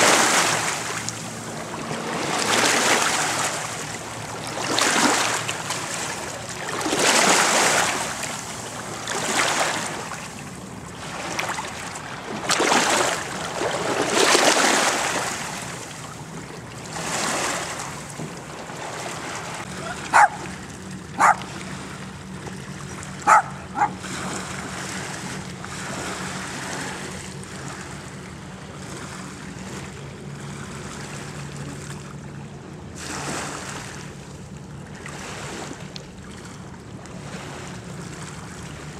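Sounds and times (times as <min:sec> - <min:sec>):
water splashing: 0:00.0 - 0:32.1
small dog yipping: 0:19.8 - 0:20.4, 0:21.2 - 0:21.4, 0:23.3 - 0:24.0.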